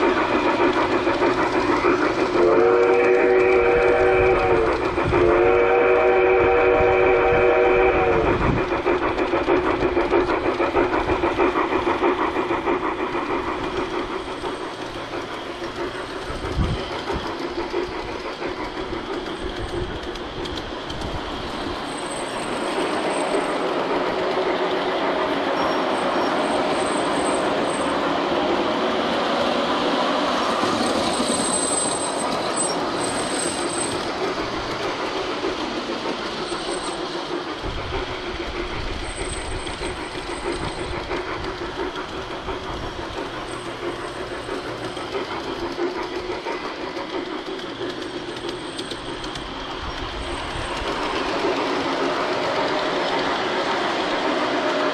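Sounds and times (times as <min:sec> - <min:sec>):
steam whistle: 0:02.3 - 0:08.4.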